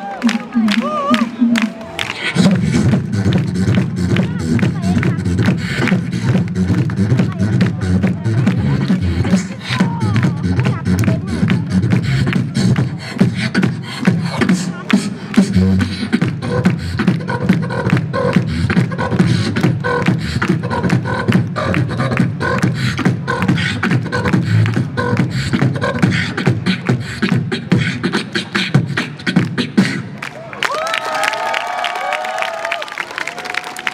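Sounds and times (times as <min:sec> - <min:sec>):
crowd cheering: 0:00.0 - 0:02.6, 0:30.2 - 0:33.9
beatboxing through speakers: 0:00.0 - 0:30.3.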